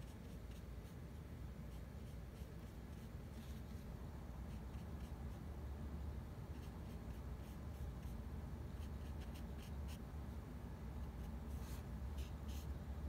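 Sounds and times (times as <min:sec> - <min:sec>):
pen scratching on paper: 0:06.5 - 0:10.0, 0:11.0 - 0:12.7.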